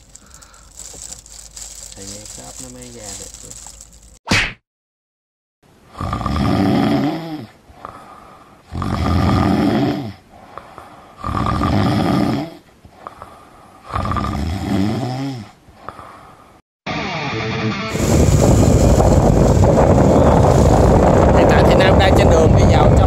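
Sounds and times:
person snoring: 0:05.9 - 0:16.2.

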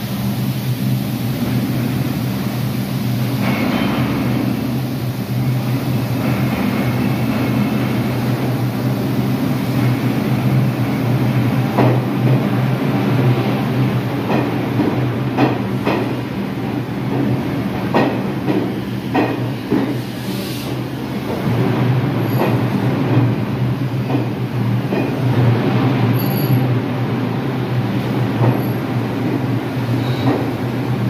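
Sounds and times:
subway train motor hum: 0:00.0 - 0:31.0.

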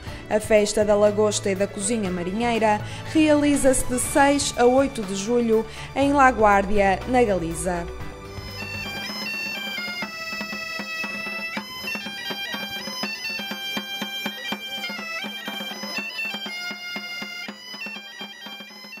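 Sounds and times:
bagpipes playing a lively tune: 0:00.8 - 0:19.0
hand drum beating: 0:07.1 - 0:19.0.

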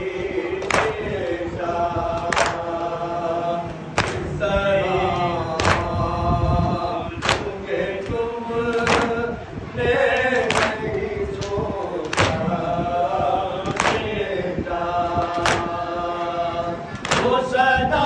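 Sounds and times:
men chanting a lament in chorus: 0:00.0 - 0:18.0
hands slapping chests: 0:04.0 - 0:04.3, 0:07.2 - 0:07.5, 0:11.4 - 0:12.4, 0:13.7 - 0:14.1, 0:15.2 - 0:15.7, 0:17.0 - 0:17.3.

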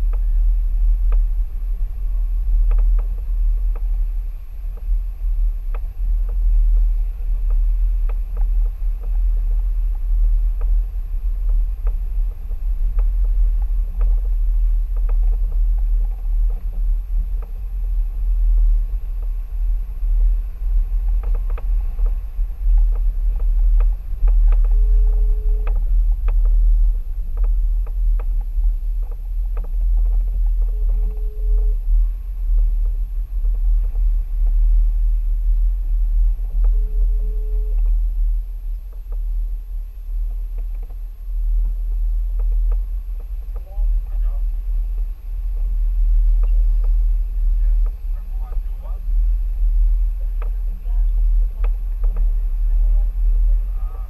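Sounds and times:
steady tone: 0:08.7 - 0:54.0
stones clicking under tyres: 0:18.4 - 0:31.8, 0:41.6 - 0:44.4.

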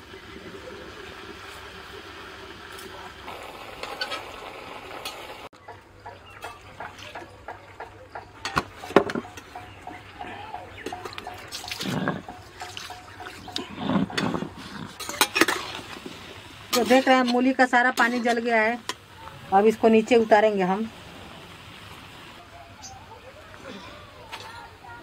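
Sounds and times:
food sizzling hiss: 0:00.0 - 0:05.5, 0:14.7 - 0:22.4.

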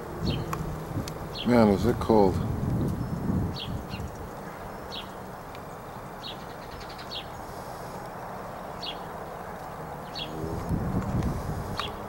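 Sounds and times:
low background noise: 0:00.0 - 0:12.0
small bird chirps: 0:02.7 - 0:07.4, 0:10.0 - 0:10.5.

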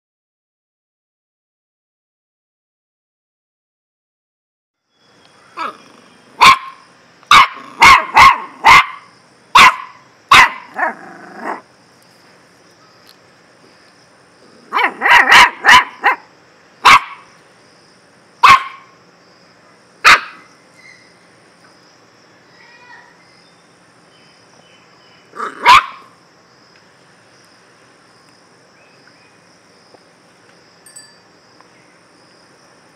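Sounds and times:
puppy yapping: 0:05.6 - 0:11.6, 0:14.7 - 0:17.3, 0:18.4 - 0:18.9, 0:20.0 - 0:20.5, 0:25.4 - 0:26.1.

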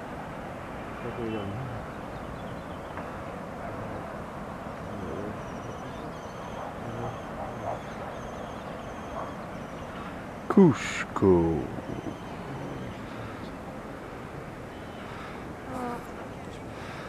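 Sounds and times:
faint distant voices: 0:00.7 - 0:17.0.

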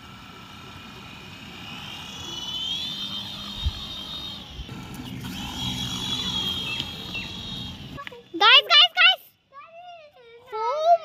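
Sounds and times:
toy helicopter motor whine: 0:00.0 - 0:08.7.

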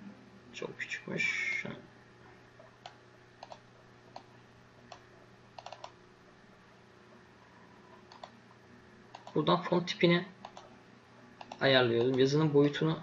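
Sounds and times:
low steady hum: 0:00.0 - 0:13.0
computer keys clicking: 0:02.8 - 0:04.3, 0:05.6 - 0:06.0, 0:08.1 - 0:08.4, 0:09.1 - 0:09.4, 0:10.4 - 0:10.7, 0:11.4 - 0:12.3.

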